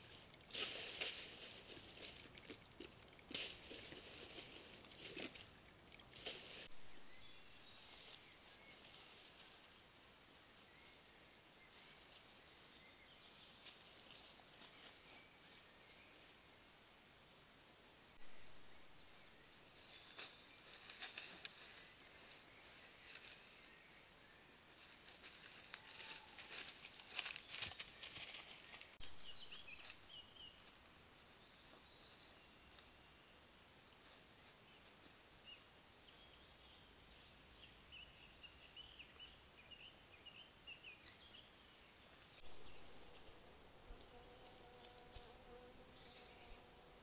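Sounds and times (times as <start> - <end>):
rustling in dry leaves: 0.0 - 16.4, 18.2 - 36.3, 42.1 - 46.8
steady microphone hiss: 0.0 - 25.7, 26.3 - 47.0
bird chirps and song: 6.6 - 9.2, 27.2 - 43.6, 45.9 - 46.8.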